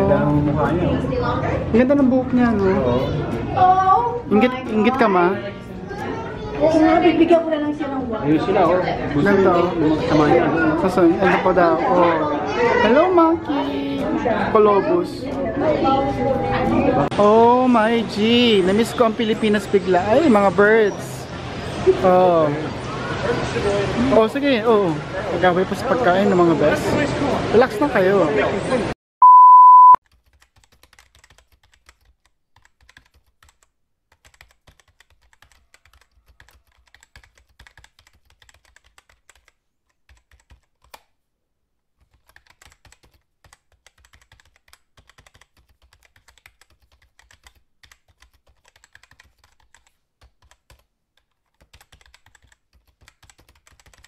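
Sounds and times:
steady test beep: 0:29.2 - 0:30.0
keyboard typing clicks: 0:30.0 - 0:41.1, 0:42.0 - 0:54.0.

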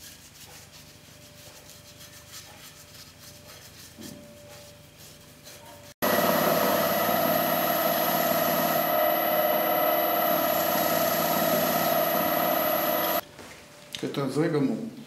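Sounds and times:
wood lathe humming and whining: 0:06.0 - 0:13.2.

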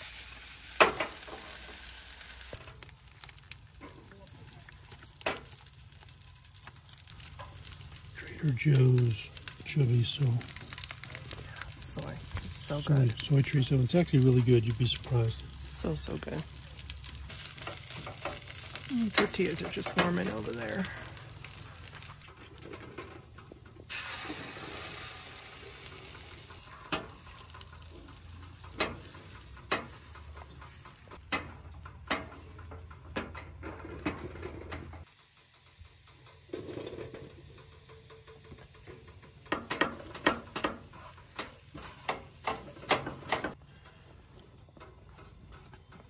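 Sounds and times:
food sizzling in a frying pan: 0:00.0 - 0:22.3, 0:23.9 - 0:31.6, 0:39.5 - 0:43.6.

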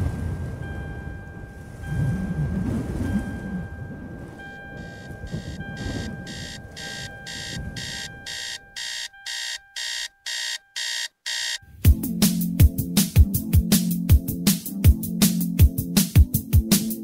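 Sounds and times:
sustained high synth tone: 0:00.7 - 0:11.7.

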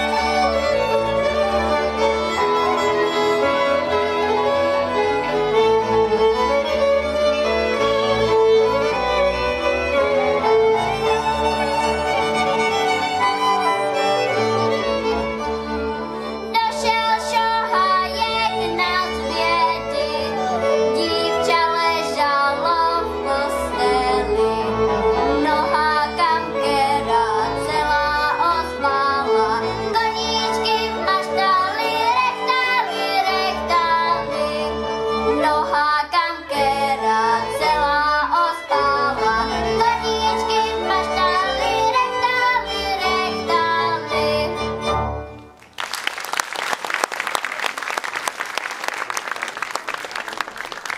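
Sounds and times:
cimbalom band with violin: 0:00.0 - 0:45.6
girl singing folk song: 0:16.5 - 0:44.8
audience applause: 0:45.5 - 0:50.9.

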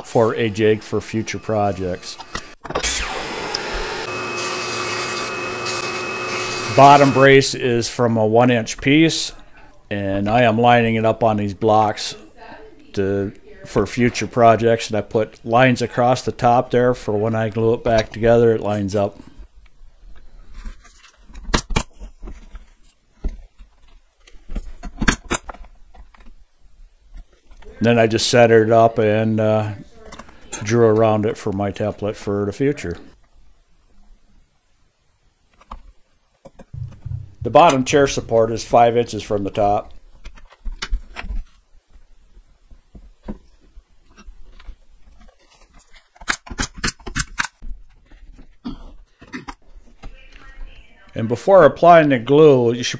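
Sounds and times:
brad nailer firing: 0:02.3 - 0:07.2.

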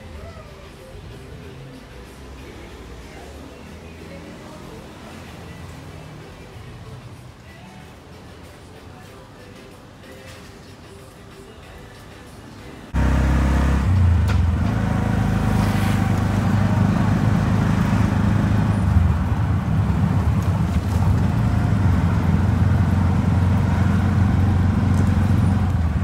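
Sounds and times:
road and traffic noise: 0:00.0 - 0:26.0
auto-rickshaw engine droning: 0:12.9 - 0:26.0.

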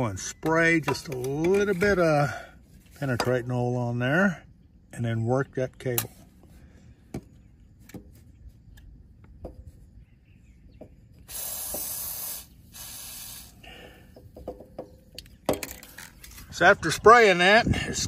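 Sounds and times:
aerosol spray hissing: 0:11.2 - 0:13.7.

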